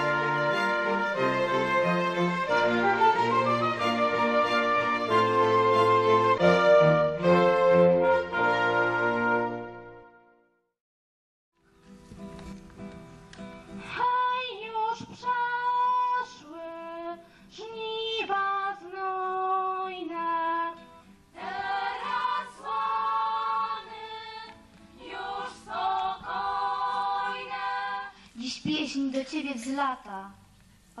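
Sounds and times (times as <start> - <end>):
acoustic guitar: 0.0 - 10.0, 11.6 - 28.8
girls singing together: 21.3 - 28.2.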